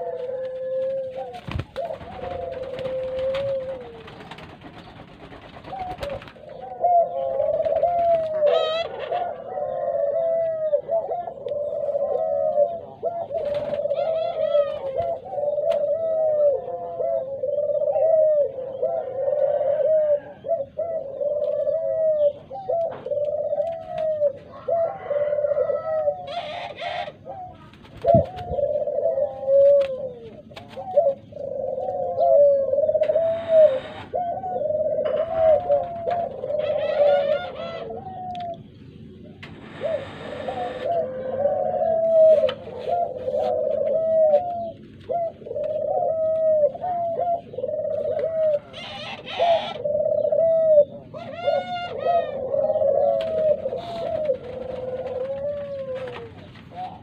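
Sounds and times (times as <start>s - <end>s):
doves cooing: 0.0s - 57.0s
wings flapping: 0.2s - 6.5s, 13.4s - 14.0s, 53.2s - 57.0s.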